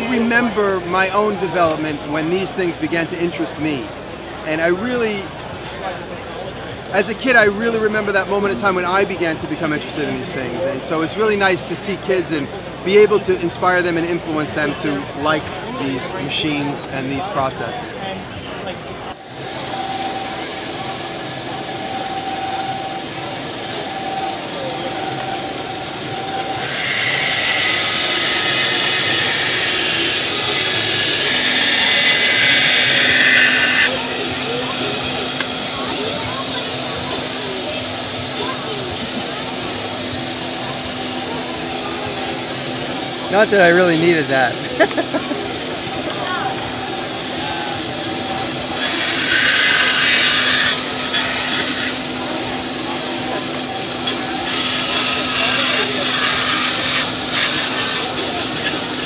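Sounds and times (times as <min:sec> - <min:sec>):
bandsaw running: 0:19.3 - 0:59.0
saw rasping through wood: 0:26.1 - 0:38.2, 0:48.3 - 0:59.0.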